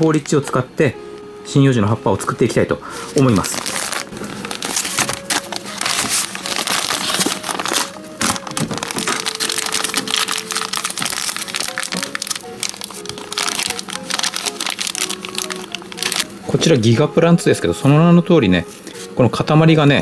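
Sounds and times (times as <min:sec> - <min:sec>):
background music: 0:00.0 - 0:20.0
plastic bags crinkling: 0:03.1 - 0:17.0.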